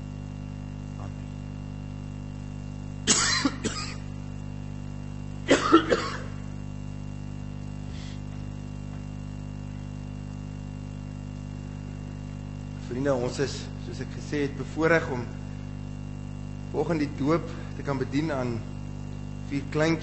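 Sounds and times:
steady low hum: 0.0s - 20.0s
person coughing: 3.1s - 4.1s, 5.4s - 6.5s.

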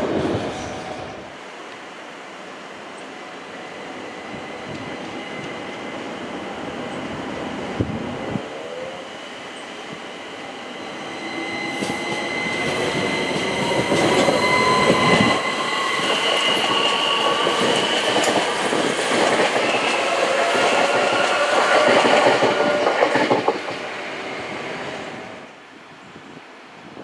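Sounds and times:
train wheels rumbling: 9.7s - 25.4s.

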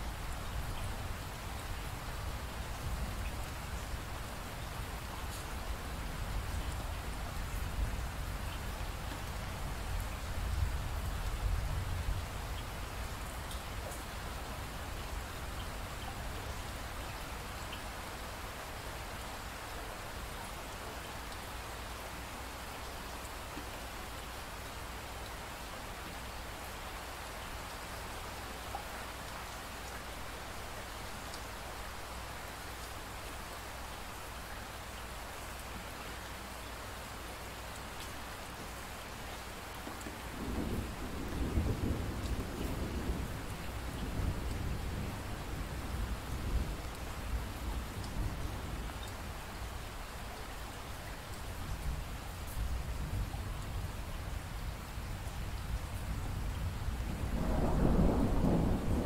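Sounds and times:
rain falling: 0.0s - 59.0s
thunder rumbling: 40.3s - 46.8s, 56.9s - 59.0s.

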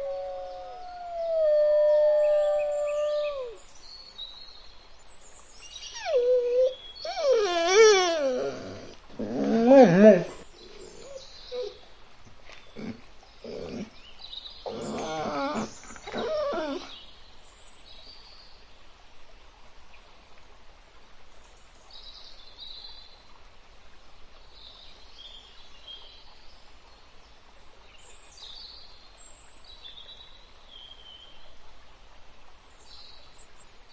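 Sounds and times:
faint high bird chirps: 5.6s - 9.4s
foxes calling: 5.7s - 11.8s, 12.4s - 14.0s, 14.7s - 16.9s.

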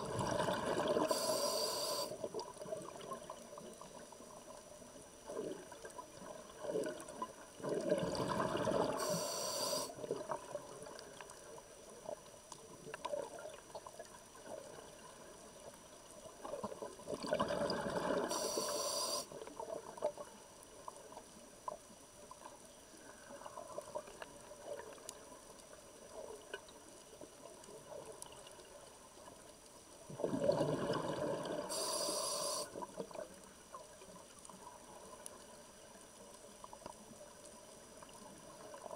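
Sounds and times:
bubbly regulator exhalations: 0.0s - 1.5s, 7.6s - 9.2s, 17.2s - 18.7s, 30.1s - 32.6s
faint steady hiss: 0.0s - 38.9s
high hiss: 1.0s - 2.2s, 8.9s - 10.0s, 18.3s - 19.4s, 31.7s - 32.8s.

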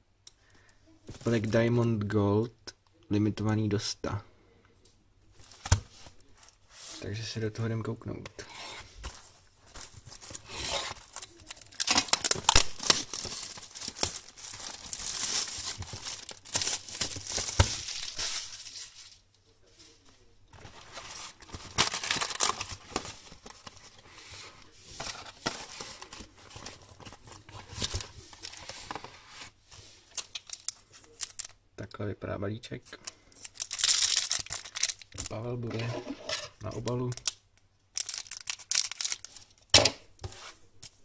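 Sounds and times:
rustling of wrap and cardboard: 8.4s - 31.5s, 33.3s - 35.6s, 38.0s - 39.6s
shrink wrap crinkling and tearing: 9.7s - 19.2s, 20.6s - 24.0s, 29.8s - 31.6s, 32.9s - 35.6s, 36.7s - 39.7s.

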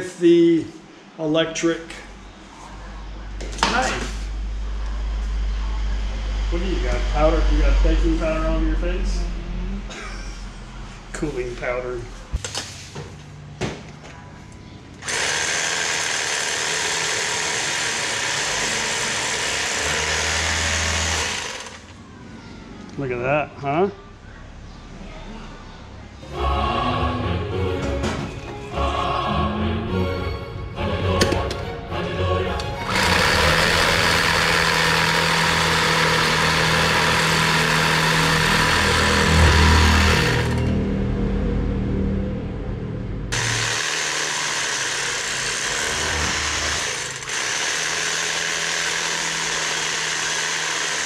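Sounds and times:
electric knife slicing bread: 32.9s - 40.8s, 43.3s - 51.0s.

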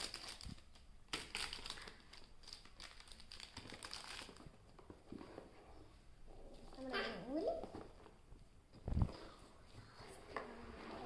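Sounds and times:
packaging crinkling and rustling: 0.0s - 4.7s.

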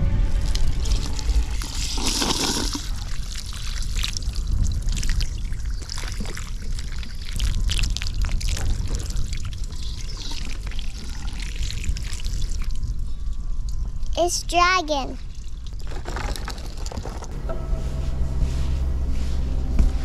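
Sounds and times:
hose water splashing: 0.4s - 12.8s.

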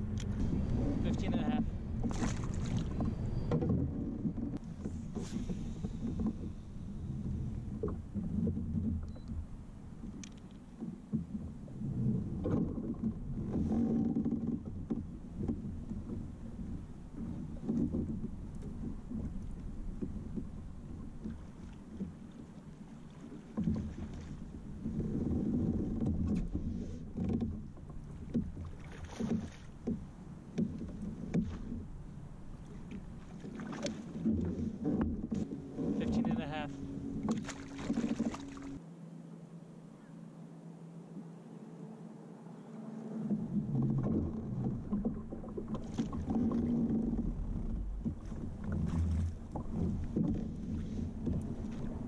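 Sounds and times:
wind on microphone: 0.0s - 10.2s, 43.2s - 52.0s
water lapping against kayak hull: 0.0s - 38.9s, 42.7s - 52.0s.

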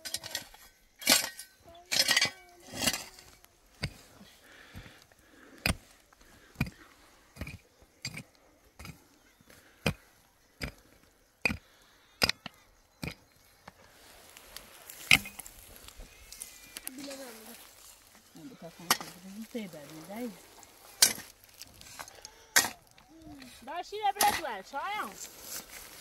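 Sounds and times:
blade clinking on stones: 0.0s - 3.2s
hoe chopping into stony soil: 7.4s - 8.2s, 14.9s - 15.5s, 21.0s - 22.8s, 24.2s - 25.0s.

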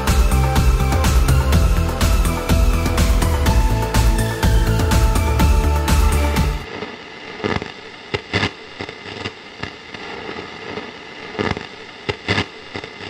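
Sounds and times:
background music: 0.0s - 6.7s
static crackles and pops: 6.6s - 13.0s.

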